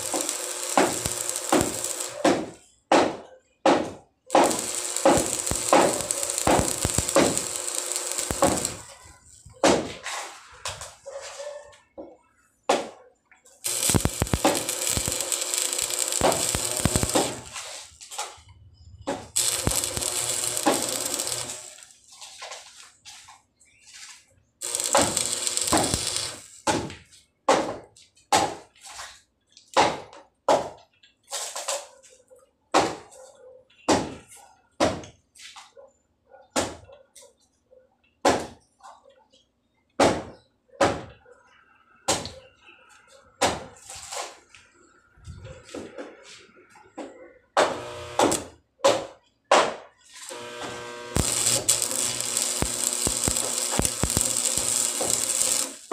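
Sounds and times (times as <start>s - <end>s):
arc welding crackling hiss: 0.0s - 2.6s, 4.3s - 9.5s, 13.6s - 18.2s, 19.1s - 22.0s, 24.6s - 26.6s, 47.6s - 48.5s, 50.1s - 55.9s.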